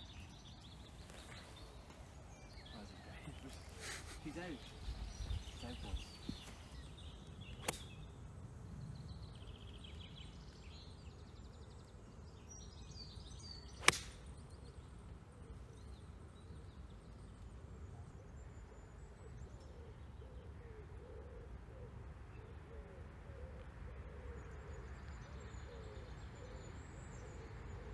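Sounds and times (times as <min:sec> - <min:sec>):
small birds chirping: 0:00.0 - 0:20.6
golf club striking ball: 0:07.6 - 0:08.0, 0:13.8 - 0:14.3
low cooing bird call: 0:18.0 - 0:27.9.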